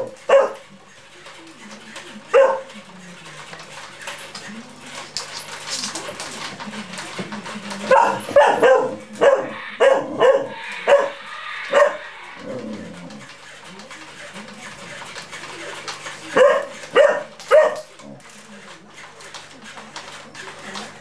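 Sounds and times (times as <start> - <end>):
puppy barking: 0.0 - 0.7, 2.3 - 2.7, 7.9 - 12.1, 16.4 - 17.9.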